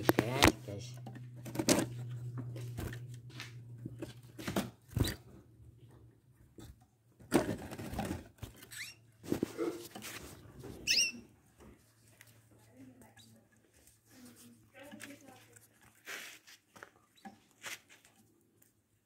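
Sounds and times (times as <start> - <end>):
canary chirps: 8.7 - 9.1, 10.8 - 11.3.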